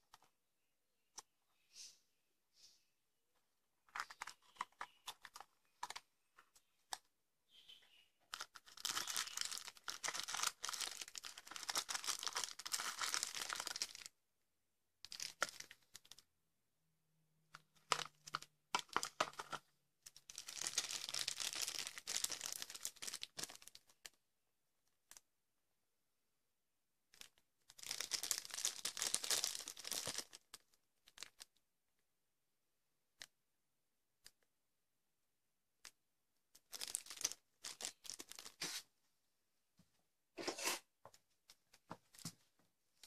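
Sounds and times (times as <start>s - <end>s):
crinkling plastic and paper wrapping: 3.8s - 7.1s, 7.7s - 14.1s, 15.1s - 16.2s, 17.6s - 24.2s, 27.1s - 31.6s, 36.6s - 38.9s.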